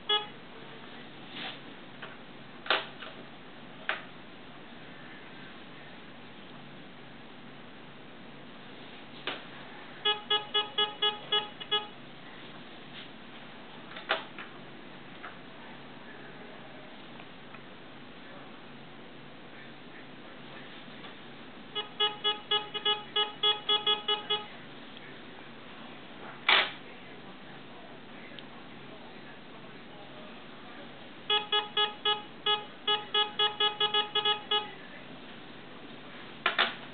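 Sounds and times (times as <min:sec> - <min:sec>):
metal detector beeps: 0:00.0 - 0:00.3, 0:10.1 - 0:11.9, 0:21.8 - 0:24.5, 0:31.3 - 0:34.8.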